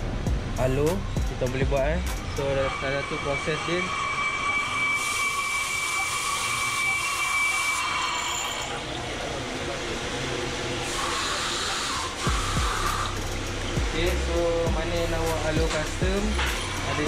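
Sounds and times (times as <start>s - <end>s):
milling machine whine: 0.0s - 17.0s
coolant spray hiss: 10.2s - 16.9s.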